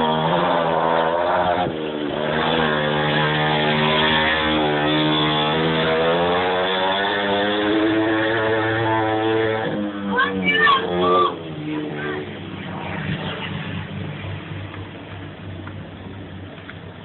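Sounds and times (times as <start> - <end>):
small motorcycle engine running: 1.6 - 8.1.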